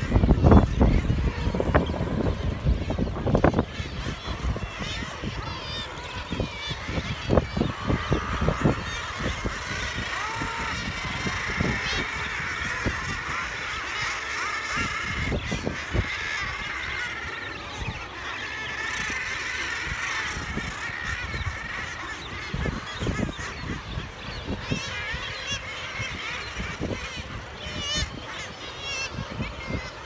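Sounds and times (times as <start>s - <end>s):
wind bumps on microphone: 0.0s - 13.5s
seabird colony calling: 0.0s - 30.0s.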